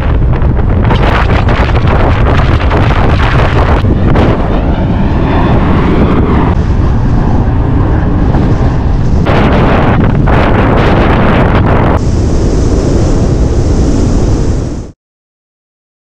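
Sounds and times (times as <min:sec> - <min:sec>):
wind buffeting microphone: 0:00.0 - 0:15.0
road noise: 0:03.2 - 0:14.9.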